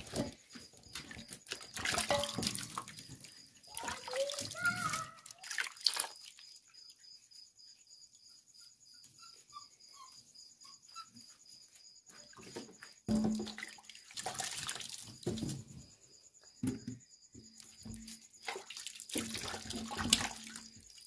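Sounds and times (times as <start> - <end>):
water splashing: 1.0 - 6.6, 13.1 - 15.4, 17.9 - 21.0.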